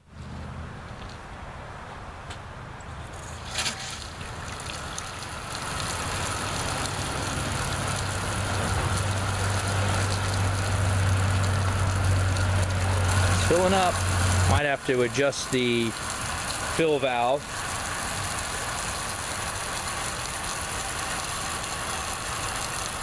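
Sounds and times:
water spraying into bucket: 3.2 - 23.0.

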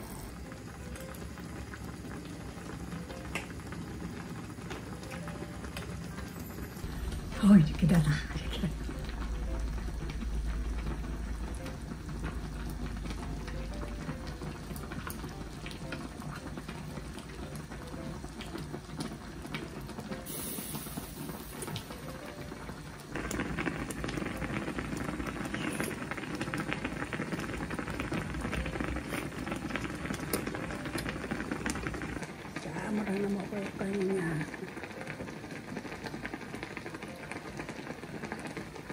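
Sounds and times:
broth bubbling in hot pot: 0.0 - 38.9.

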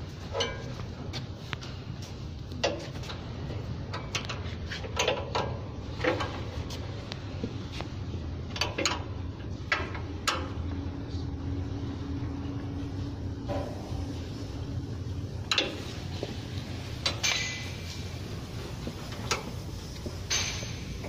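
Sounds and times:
low hum: 6.5 - 21.0.

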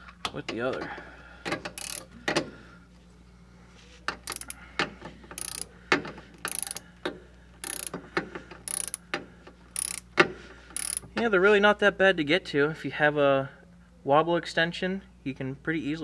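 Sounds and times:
ratchet wrench clicking: 1.6 - 2.1, 4.2 - 4.6, 5.3 - 5.7, 6.4 - 6.9, 7.6 - 8.0, 8.6 - 9.1, 9.7 - 10.1, 10.7 - 11.1.

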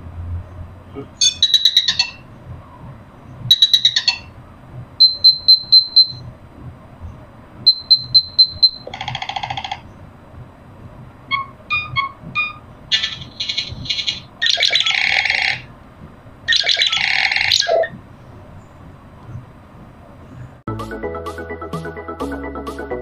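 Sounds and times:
electronic ringtone beeps: 1.2 - 2.2, 3.5 - 4.3, 5.0 - 6.2, 7.7 - 9.8, 11.3 - 15.7, 16.5 - 17.9
low buzzy chord: 20.7 - 23.0.

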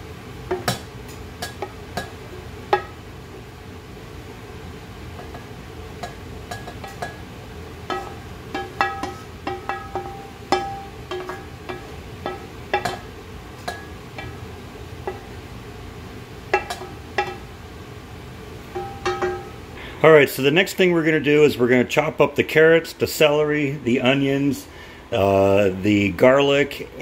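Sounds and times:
clinks and taps on metal pot: 5.2 - 7.2, 7.9 - 14.4, 15.0 - 15.3, 16.5 - 17.5, 18.7 - 19.6.

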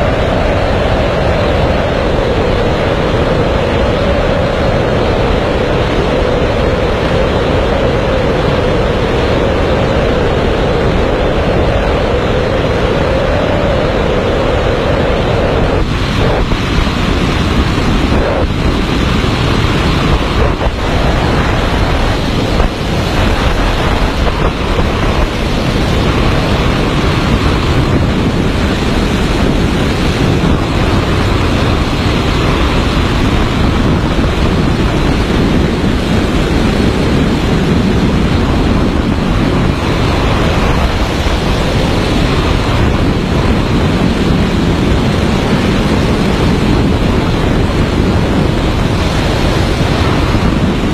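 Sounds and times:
wind rushing over microphone: 0.0 - 50.9.

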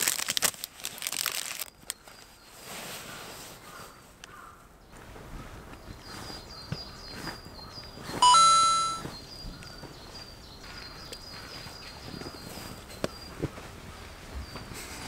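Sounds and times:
bright beep-like tone: 8.2 - 9.0
faint high chirps: 8.2 - 9.1.

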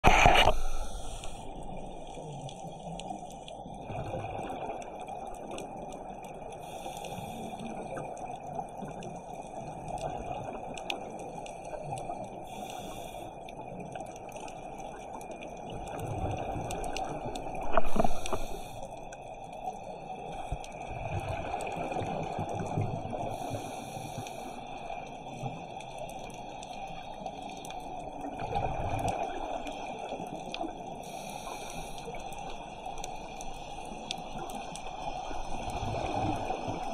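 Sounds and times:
faint clicks: 0.0 - 3.7, 10.7 - 19.6, 22.8 - 36.9
rush of water underwater: 0.0 - 36.9
gurgling regulator bubbles: 0.1 - 36.9.

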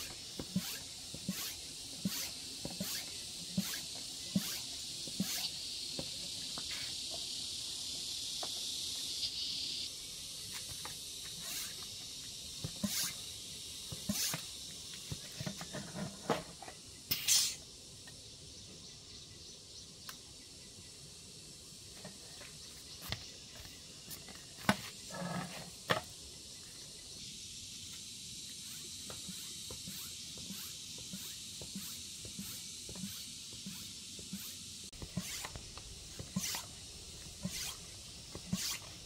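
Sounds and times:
short hiss of air: 0.0 - 9.3, 10.4 - 12.0, 12.7 - 14.7, 17.1 - 17.7, 27.6 - 36.8, 37.4 - 39.0
high insect buzz: 0.0 - 39.0.

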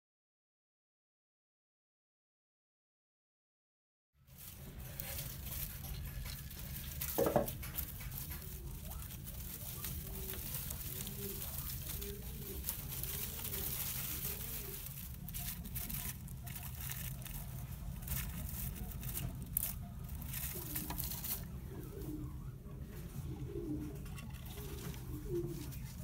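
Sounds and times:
light rustling and clicks: 4.4 - 21.5
dove cooing: 4.4 - 26.0.

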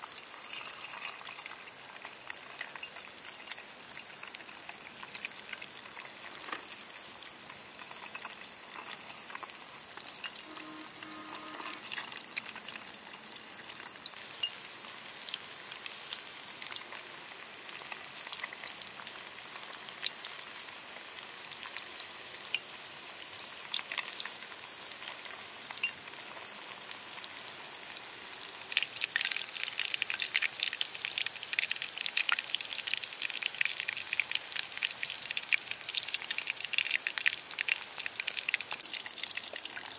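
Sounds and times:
food deep-frying in oil: 0.0 - 39.9.

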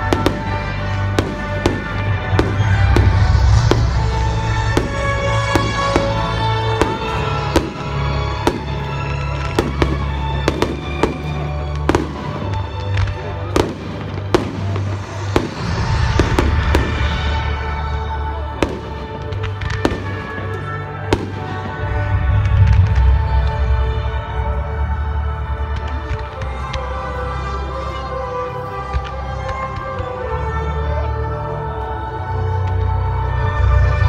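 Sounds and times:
fireworks bangs and pops: 0.0 - 17.6, 18.3 - 23.8, 25.6 - 27.2.

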